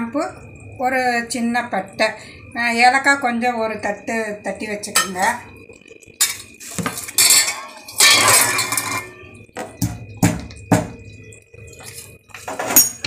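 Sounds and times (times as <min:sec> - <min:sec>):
metal dishes scraping: 0:06.2 - 0:09.2, 0:11.7 - 0:13.0
metal bowls and plates clattering: 0:06.2 - 0:11.1, 0:11.7 - 0:13.0.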